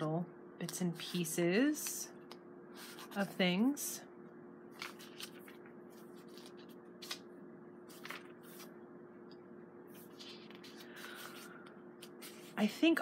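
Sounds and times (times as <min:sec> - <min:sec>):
steady low hum: 0:00.0 - 0:13.0
paper pages rustling: 0:04.7 - 0:12.7.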